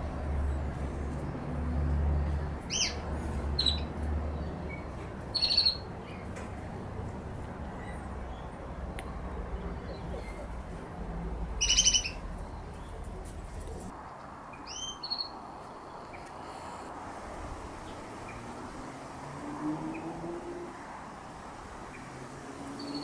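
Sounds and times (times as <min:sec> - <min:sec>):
magpies calling: 0:02.7 - 0:03.0, 0:03.6 - 0:06.3, 0:07.7 - 0:10.6, 0:11.6 - 0:13.0.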